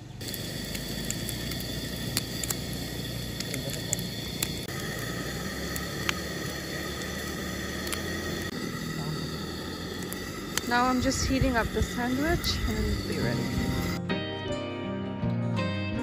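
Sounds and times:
gas stove burner hissing: 0:00.0 - 0:14.0
sharp pops: 0:00.2 - 0:08.6.

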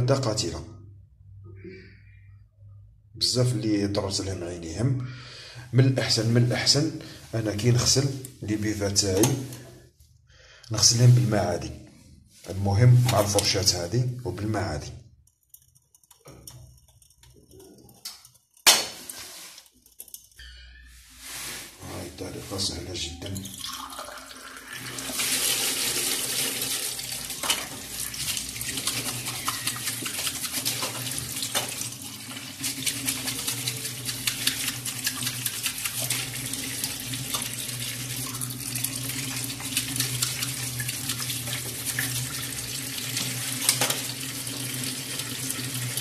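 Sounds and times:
tap water running into sink: 0:23.5 - 0:46.0.

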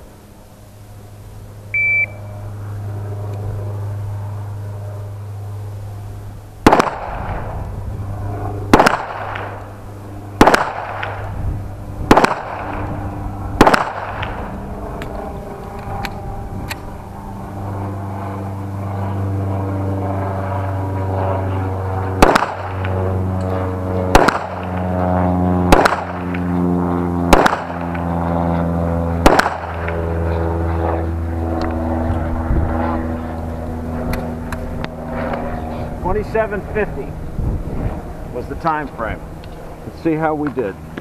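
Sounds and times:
engine running: 0:00.0 - 0:41.0
pistol shots: 0:06.6 - 0:07.5, 0:08.7 - 0:09.6, 0:10.4 - 0:11.3, 0:12.1 - 0:12.8, 0:13.6 - 0:14.4, 0:22.2 - 0:22.9, 0:24.1 - 0:24.8, 0:25.7 - 0:26.3, 0:27.3 - 0:27.9, 0:29.2 - 0:29.8.

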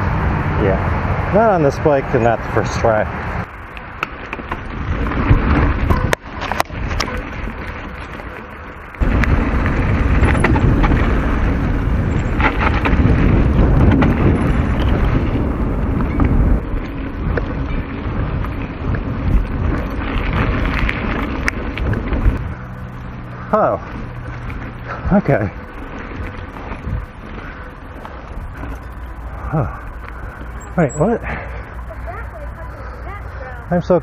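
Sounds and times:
tyres rumbling over trail: 0:00.0 - 0:34.0
wind buffeting microphone: 0:00.0 - 0:34.0
bike clicks and rattles: 0:01.4 - 0:34.0.

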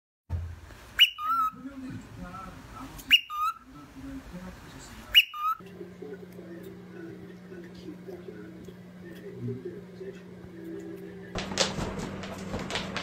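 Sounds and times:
cockatiel whistling two-note call: 0:01.0 - 0:01.5.

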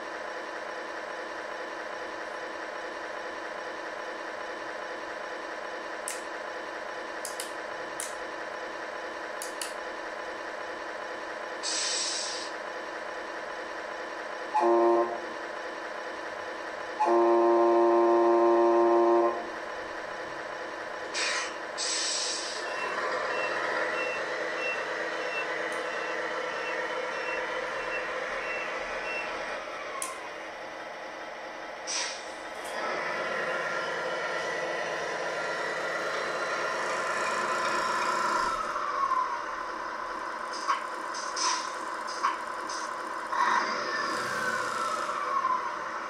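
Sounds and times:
simulated diesel idle hum: 0:00.0 - 0:46.0
air hisses: 0:11.6 - 0:12.5, 0:21.2 - 0:22.6
reversing beeper: 0:22.6 - 0:29.4.

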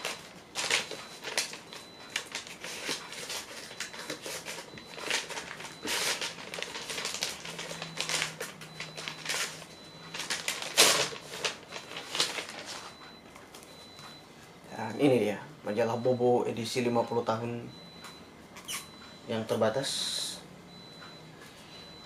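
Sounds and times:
paper envelope rustling and crinkling: 0:00.0 - 0:13.8.

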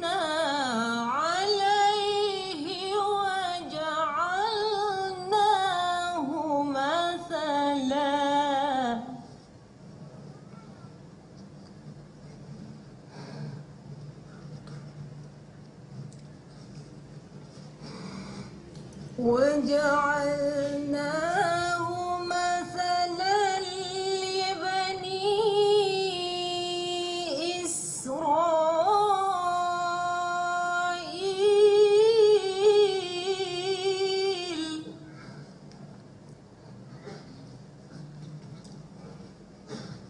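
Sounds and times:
woman chanting melodically: 0:00.0 - 0:09.3, 0:19.2 - 0:35.2.

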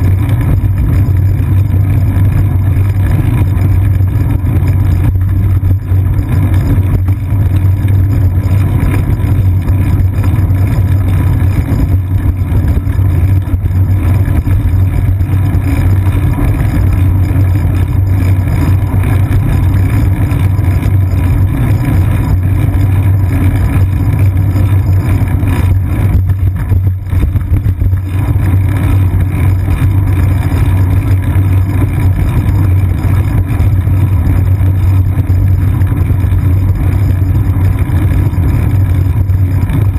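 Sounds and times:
bicycle road rumble: 0:00.0 - 0:39.9.

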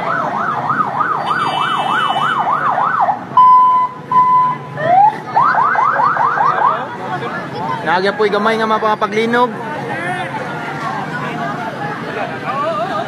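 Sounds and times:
loud steady siren beeps: 0:00.0 - 0:06.9.

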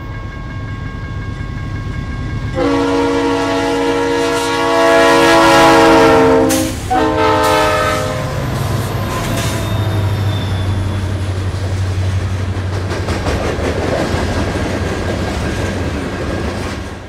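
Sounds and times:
locomotive rumble: 0:00.0 - 0:17.0
locomotive air horn blast: 0:02.6 - 0:11.2.

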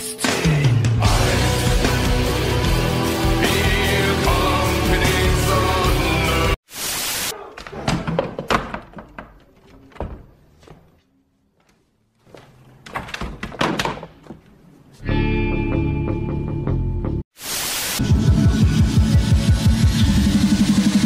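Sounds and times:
music: 0:00.0 - 0:06.6, 0:15.0 - 0:17.2, 0:18.0 - 0:21.0
tv static hiss: 0:17.4 - 0:18.0.

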